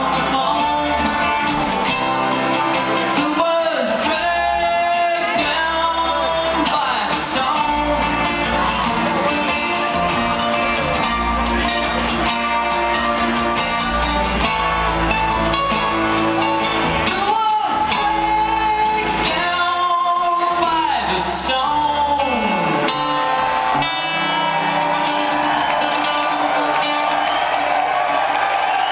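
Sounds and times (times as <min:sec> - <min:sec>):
person singing: 0:00.0 - 0:12.4, 0:17.0 - 0:25.2
string band playing: 0:00.0 - 0:28.9.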